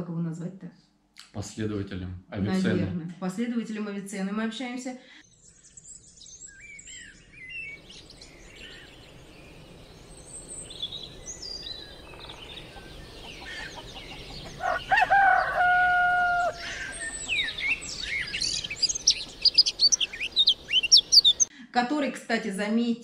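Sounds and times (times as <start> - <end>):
birds chirping: 5.2 - 21.5
rooster crowing: 12.7 - 18.3.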